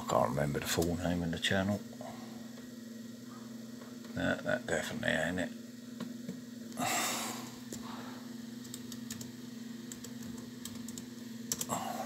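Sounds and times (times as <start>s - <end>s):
breathy exhale: 6.8s - 8.3s
laptop keys clicking: 8.6s - 9.3s, 9.9s - 11.7s.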